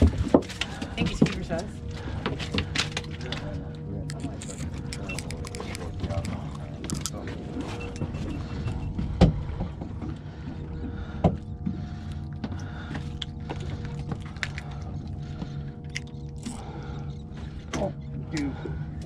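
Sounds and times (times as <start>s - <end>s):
low engine hum: 0.0s - 19.0s
fishing tackle clicking and knocking: 4.1s - 7.2s, 12.4s - 15.2s, 15.8s - 16.6s.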